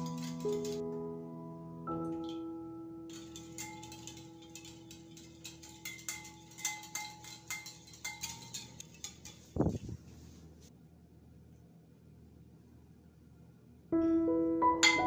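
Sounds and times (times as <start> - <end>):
whisk clicking against bowl: 3.1 - 9.6.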